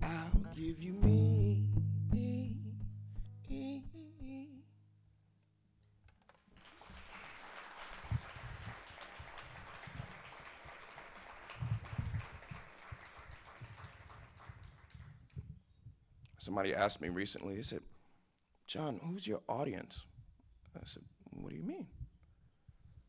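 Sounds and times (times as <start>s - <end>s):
person singing: 0.0s - 4.7s
audience applause: 6.3s - 15.4s.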